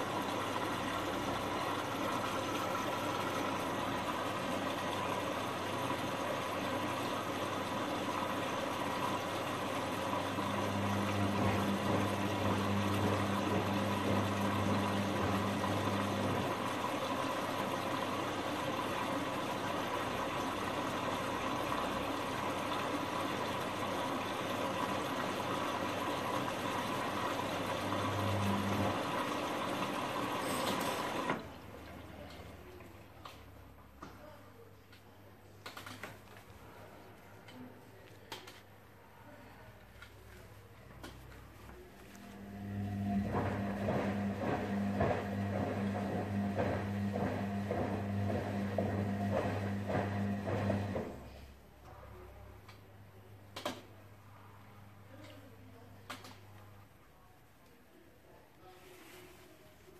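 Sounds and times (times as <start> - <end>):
water sloshing in washing machine drum: 0.0 - 33.7, 42.0 - 51.3
washing machine motor humming: 0.0 - 33.9, 40.9 - 51.5.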